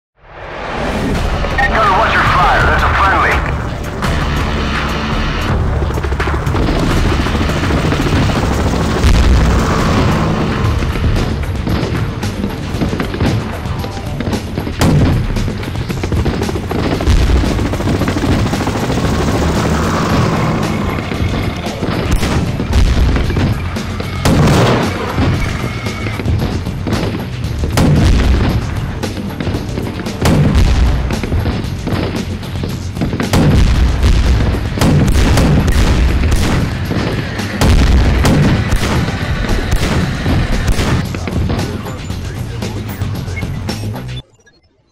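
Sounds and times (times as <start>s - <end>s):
background music: 0.2s - 44.9s
rapid gunfire: 4.0s - 41.8s.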